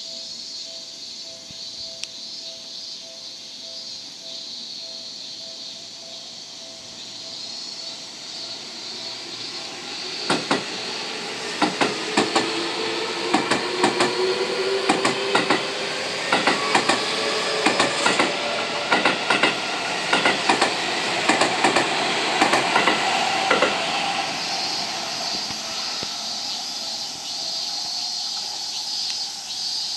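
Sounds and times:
traction motors whining: 6.5s - 29.9s
wheels clacking over rail joints: 8.6s - 29.2s.

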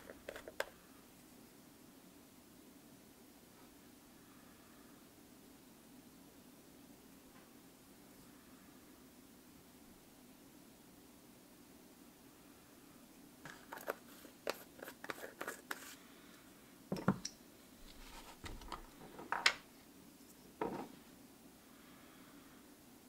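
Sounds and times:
objects knocking on wooden bench: 16.9s - 17.2s, 18.4s - 19.6s, 20.6s - 21.0s.

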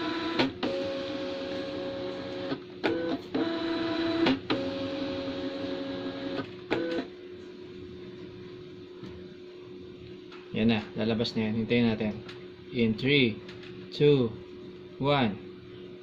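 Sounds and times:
printer paper-feed motor whirring: 0.0s - 7.1s.

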